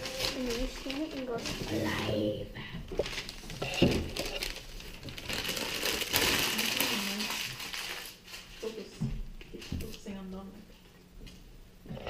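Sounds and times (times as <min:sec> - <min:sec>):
gift packaging crinkling: 0:00.0 - 0:02.3, 0:02.9 - 0:09.0.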